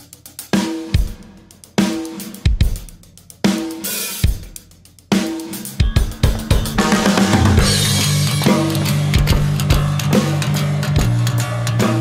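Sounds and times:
drum hits ringing: 0:05.7 - 0:11.3
bass drum strokes: 0:05.8 - 0:11.3.

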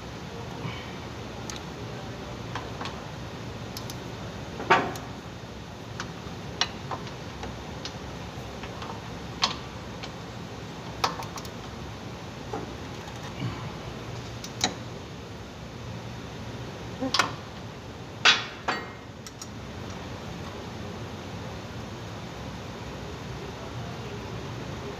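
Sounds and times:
low background hum: 0:00.0 - 0:24.9
wrenches clicking and clinking: 0:12.9 - 0:13.4.

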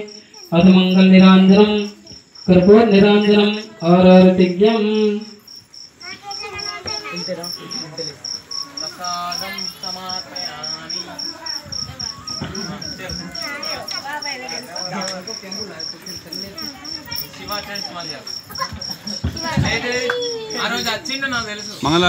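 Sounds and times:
cricket chirping: 0:00.0 - 0:22.0
low talking voices: 0:06.0 - 0:22.0.

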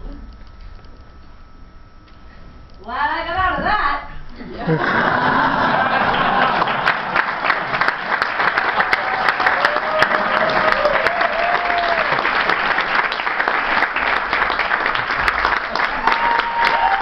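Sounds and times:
audience applauding: 0:04.9 - 0:17.0
voices cheering: 0:08.5 - 0:12.4, 0:15.7 - 0:17.0.

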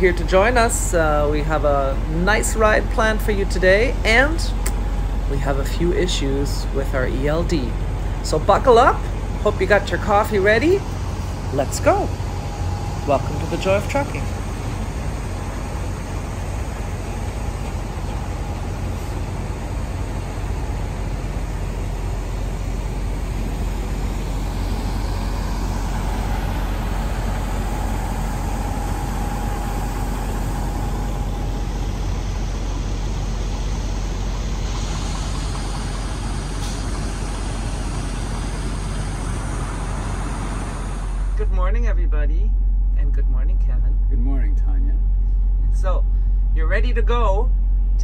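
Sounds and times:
truck diesel engines idling: 0:00.0 - 0:48.0.

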